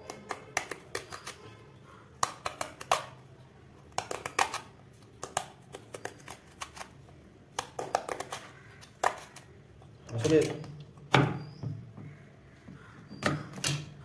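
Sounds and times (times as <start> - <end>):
knife cutting gourd skin: 0.0 - 1.5, 3.9 - 11.5.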